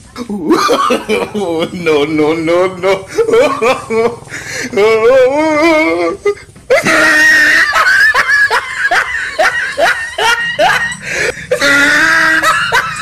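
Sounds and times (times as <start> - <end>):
person laughing: 0.2 - 13.0
person screaming: 4.8 - 7.8, 11.5 - 12.6.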